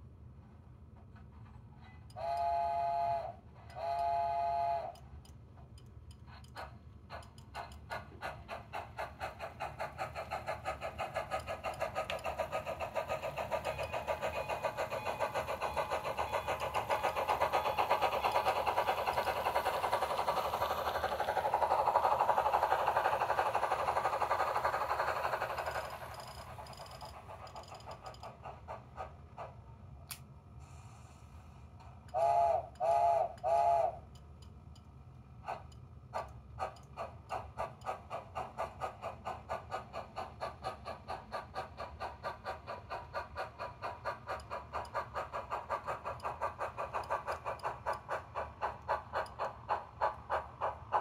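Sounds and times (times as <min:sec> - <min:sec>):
steam locomotive chuffing: 0:00.7 - 0:51.0
model train whistle blasts: 0:02.2 - 0:05.0, 0:32.1 - 0:34.0.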